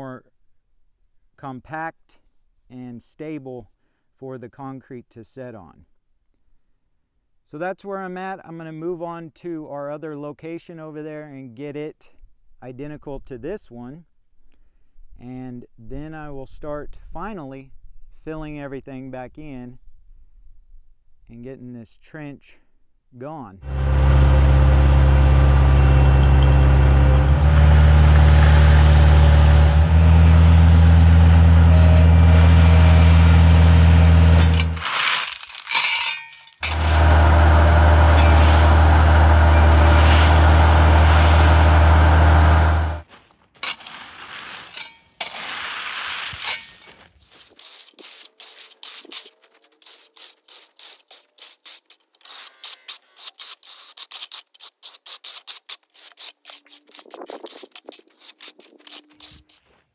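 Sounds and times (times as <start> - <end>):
rake scraping through gravel: 23.6 - 32.8, 34.3 - 41.9, 43.0 - 59.9
gravel dumping from bucket: 23.6 - 33.4, 34.2 - 42.4, 43.0 - 51.0
diesel loader engine at high throttle: 23.6 - 34.8, 36.6 - 43.0.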